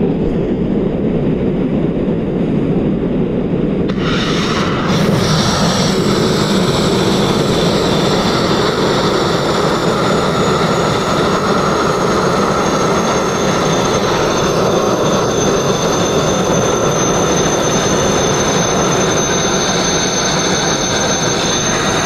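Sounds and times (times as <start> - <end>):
sandblasting hiss: 3.9 - 8.7
thin high whistle: 12.2 - 22.0.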